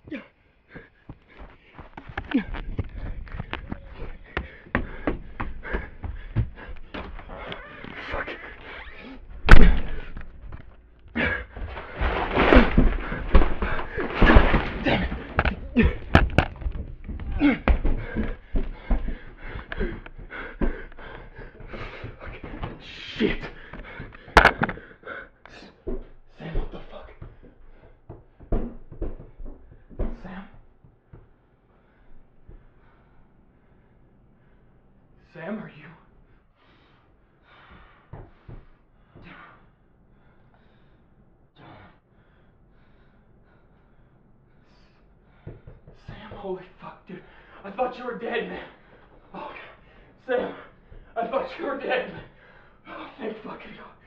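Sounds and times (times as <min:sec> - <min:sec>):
person panting and gasping: 0:00.0 - 0:12.0, 0:12.6 - 0:30.6, 0:36.4 - 0:46.2
camera handling knocks and thumps: 0:24.3 - 0:24.8.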